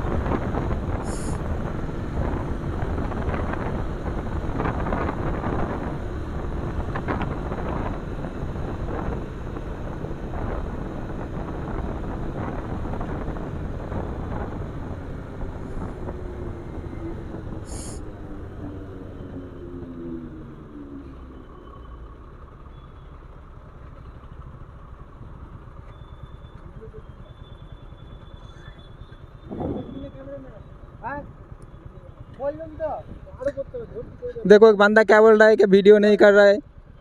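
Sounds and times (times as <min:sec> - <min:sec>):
wind rushing over microphone: 0:00.0 - 0:20.7, 0:29.3 - 0:31.5
motorcycle engine running: 0:00.0 - 0:37.0.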